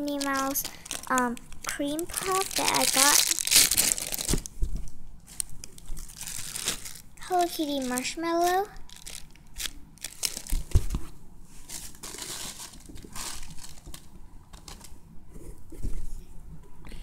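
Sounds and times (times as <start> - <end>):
plastic bags crinkling: 0.0 - 4.6, 5.2 - 11.0, 11.6 - 14.9.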